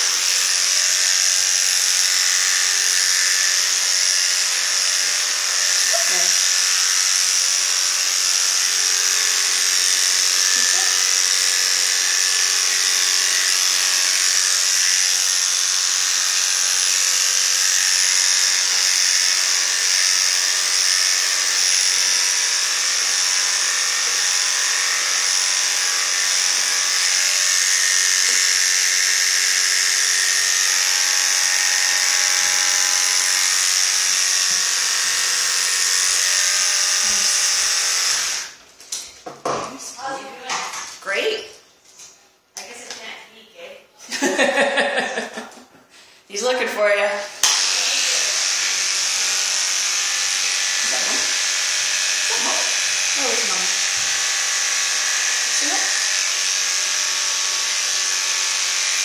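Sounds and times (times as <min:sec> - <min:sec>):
electric clippers buzzing: 0:00.0 - 0:38.6, 0:44.1 - 0:45.6, 0:46.4 - 0:59.0.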